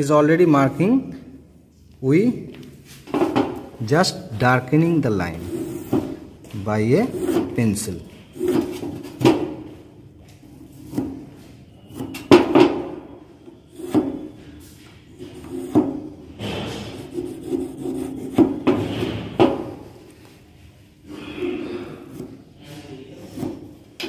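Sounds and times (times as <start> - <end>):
rubbing and scraping: 5.3 - 6.2, 6.9 - 7.7, 15.2 - 19.4.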